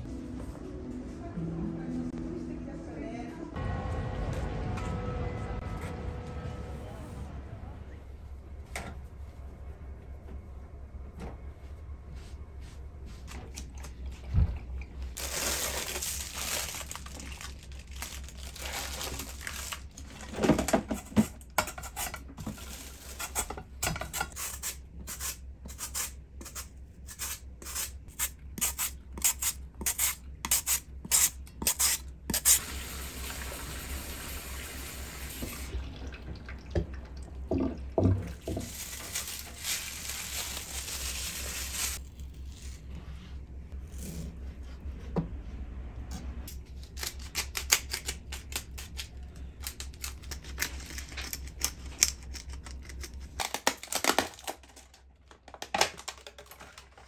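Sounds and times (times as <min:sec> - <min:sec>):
plastic wrap crinkling: 0:15.2 - 0:20.4, 0:22.4 - 0:23.5, 0:38.4 - 0:42.7, 0:53.3 - 0:57.0.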